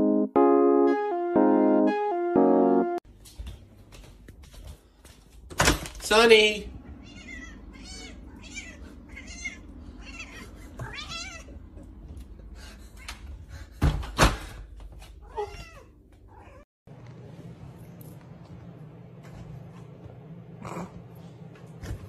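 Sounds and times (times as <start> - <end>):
cat meowing: 7.0 - 11.5.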